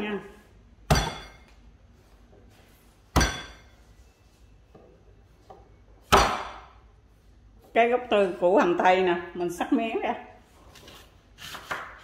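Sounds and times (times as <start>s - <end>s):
wooden pounder whacking cutting board: 6.1s - 6.7s.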